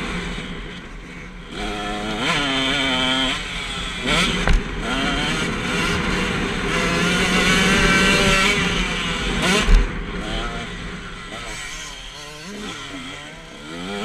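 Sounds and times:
motocross engine revving: 0.0s - 14.0s
thump: 4.4s - 4.7s.

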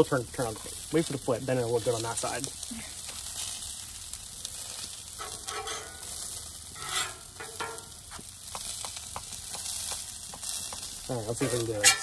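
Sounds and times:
food sizzling on griddle: 0.0s - 12.0s
spatulas tapping metal: 5.2s - 6.1s, 6.8s - 12.0s
metal spatulas scraping: 5.2s - 6.2s, 6.8s - 8.0s, 11.8s - 12.0s.

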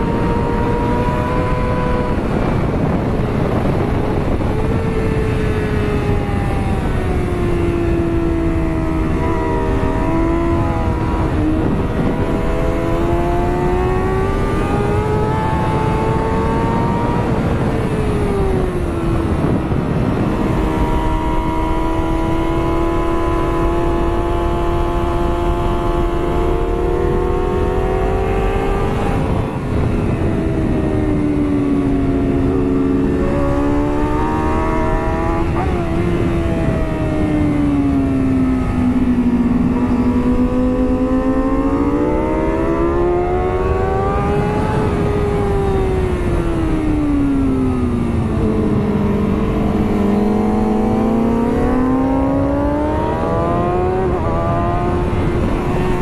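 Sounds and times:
motorcycle engine at high revs: 0.0s - 56.0s
wind rushing: 0.0s - 56.0s.

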